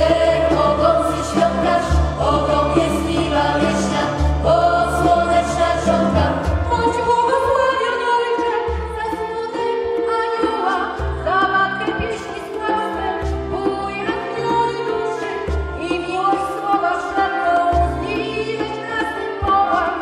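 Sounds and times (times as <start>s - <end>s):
mixed choir singing: 0.0s - 8.4s
keyboard: 0.0s - 20.0s
violin: 0.0s - 20.0s.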